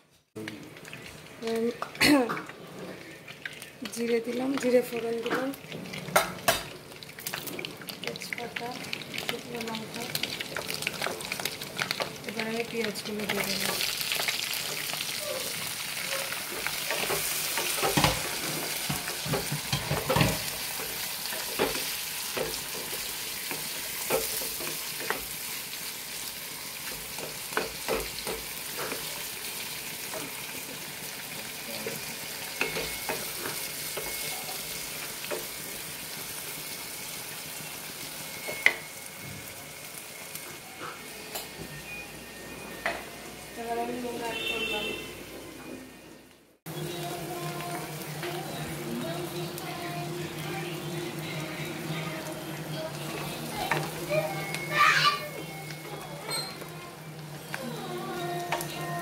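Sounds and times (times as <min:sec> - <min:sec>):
onions sizzling in oil: 0:00.4 - 0:45.5, 0:46.7 - 0:59.0.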